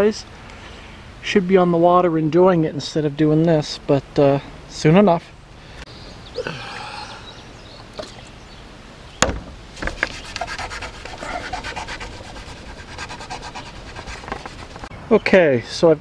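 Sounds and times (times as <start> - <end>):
cloth rag rubbing plastic: 9.8 - 14.9.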